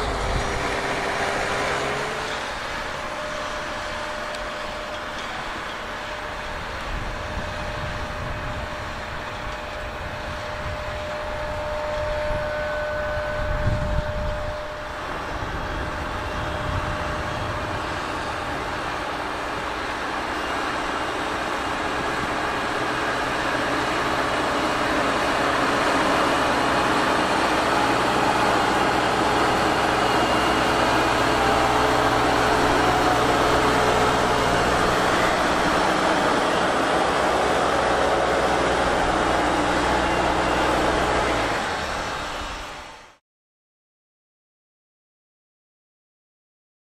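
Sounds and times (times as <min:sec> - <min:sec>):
diesel engine under load: 0:00.0 - 0:43.2.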